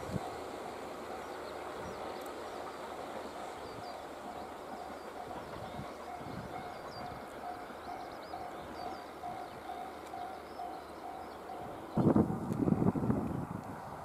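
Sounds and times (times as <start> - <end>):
train rumbling: 0.0 - 14.0
small birds chirping: 1.2 - 12.2
level crossing warning bell: 4.4 - 12.5.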